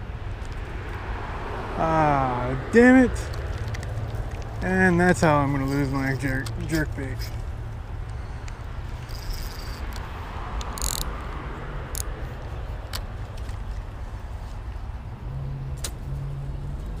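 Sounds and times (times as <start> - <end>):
busy road traffic: 0.0 - 17.0
fishing reel clicks: 5.4 - 7.4, 8.4 - 11.2
fishing reel hiss: 9.0 - 9.8.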